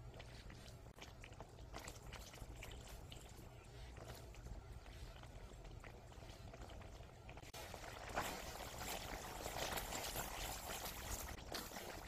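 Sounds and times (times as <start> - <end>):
wet paste squelching and popping: 0.0 - 12.0.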